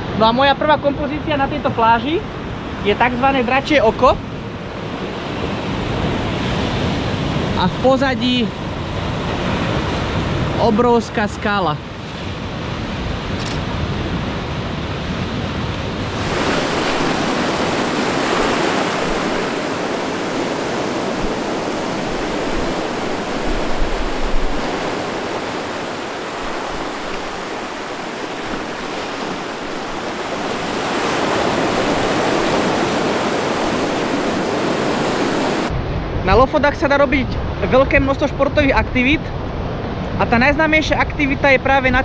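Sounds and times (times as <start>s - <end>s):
sea surf breaking on beach: 2.2s - 36.3s
wind rumbling on microphone: 11.7s - 42.0s.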